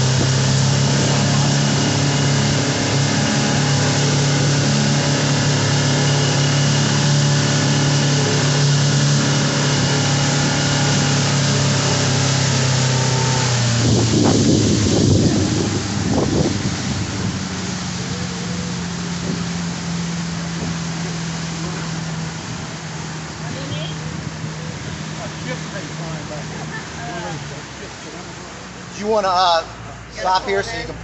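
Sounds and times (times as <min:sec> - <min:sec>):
wind gusts on microphone: 0:00.0 - 0:21.3
outboard motor humming: 0:00.0 - 0:31.0
water rushing from wake: 0:00.0 - 0:31.0.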